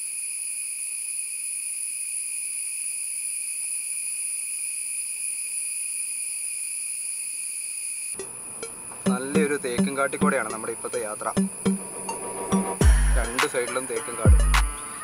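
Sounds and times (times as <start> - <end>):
forest insects droning: 0.0 - 15.0.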